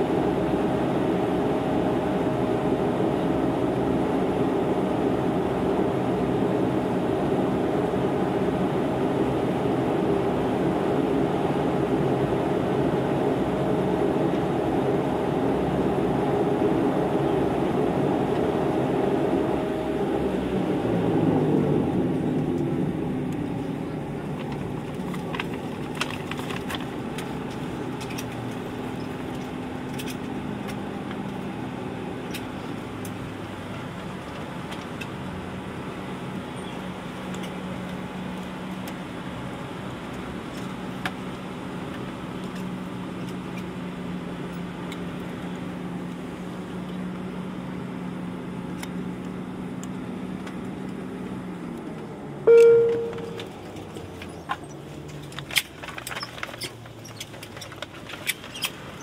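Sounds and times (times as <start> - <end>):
aircraft cabin hum: 22.1 - 29.6, 52.5 - 56.6.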